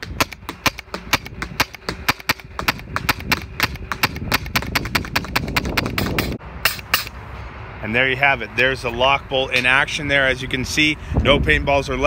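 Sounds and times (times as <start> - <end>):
paintball marker firing rapidly: 0.0 - 6.4.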